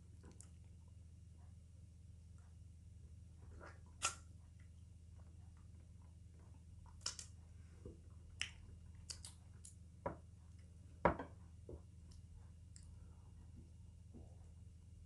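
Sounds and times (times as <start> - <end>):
faint low hum: 0.0 - 15.0
wet lip smacks and mouth clicks: 8.4 - 9.8.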